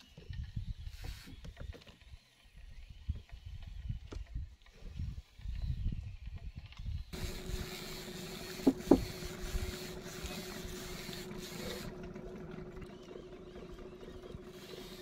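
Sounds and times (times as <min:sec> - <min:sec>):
wind: 0:00.0 - 0:15.0
boat engine hum: 0:07.2 - 0:15.0
water noise: 0:07.2 - 0:15.0.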